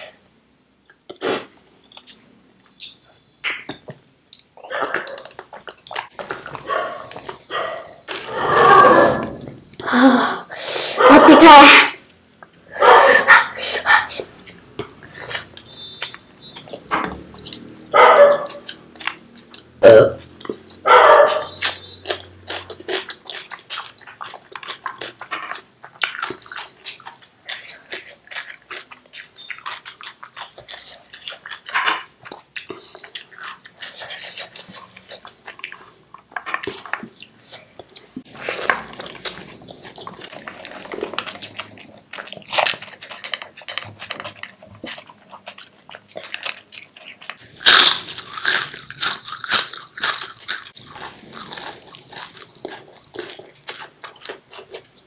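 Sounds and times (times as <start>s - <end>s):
crunchy bites and chewing: 14.6s - 55.0s.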